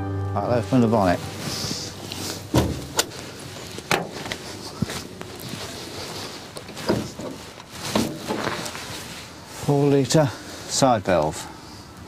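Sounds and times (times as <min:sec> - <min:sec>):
footsteps on gravel: 0:01.1 - 0:09.0
car bonnet catch clicks and knocks: 0:02.5 - 0:03.1.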